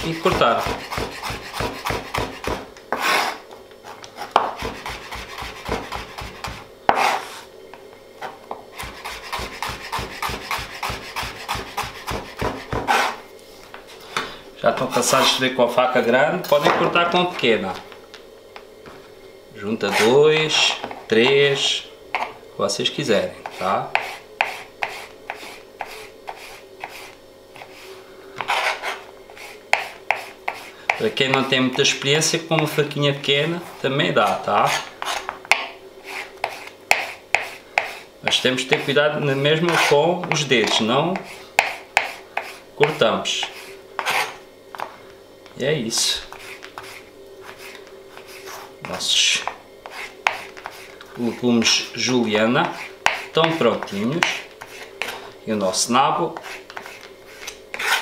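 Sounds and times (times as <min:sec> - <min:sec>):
knife chopping on plastic board: 0:00.2 - 0:03.1, 0:04.3 - 0:07.1, 0:08.8 - 0:13.2, 0:29.7 - 0:31.5, 0:36.4 - 0:38.9, 0:39.7 - 0:44.9, 0:49.4 - 0:50.8, 0:52.6 - 0:55.2.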